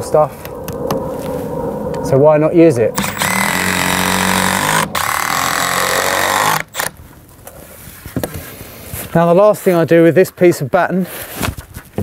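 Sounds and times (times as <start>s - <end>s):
cordless drill driving screw: 3.0s - 7.0s.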